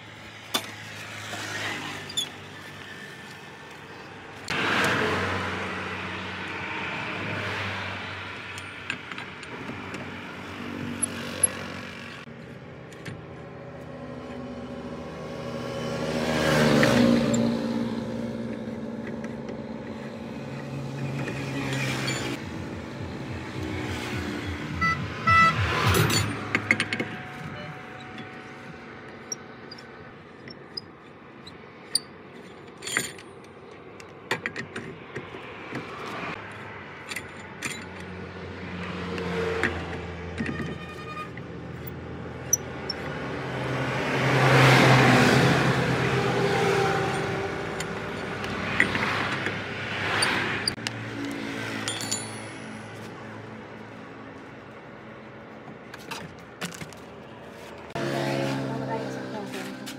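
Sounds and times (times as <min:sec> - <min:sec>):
passing vehicle: 0:00.0 - 0:12.6, 0:13.2 - 0:30.3, 0:34.9 - 0:40.4, 0:41.1 - 0:59.9
lug wrench clinking and scraping: 0:08.4 - 0:10.2, 0:10.8 - 0:12.0, 0:18.4 - 0:22.4, 0:24.8 - 0:35.5, 0:36.4 - 0:38.2, 0:39.2 - 0:43.4, 0:46.0 - 0:53.2.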